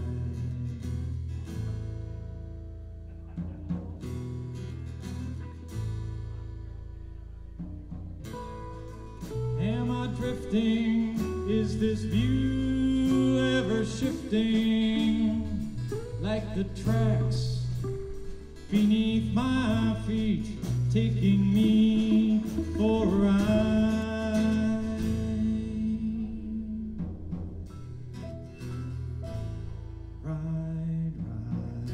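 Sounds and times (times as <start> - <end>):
rock band playing: 2.9 - 29.8
person singing: 9.4 - 27.3, 30.2 - 31.9.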